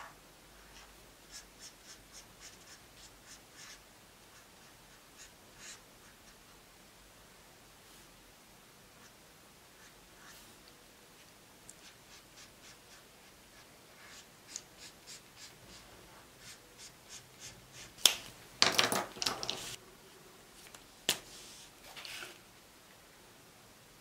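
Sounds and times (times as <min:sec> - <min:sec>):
marker rattling: 0:18.6 - 0:19.8.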